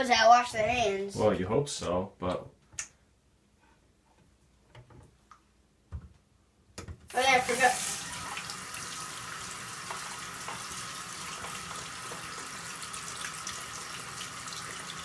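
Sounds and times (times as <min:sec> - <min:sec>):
faucet water running into sink: 0:07.1 - 0:15.0.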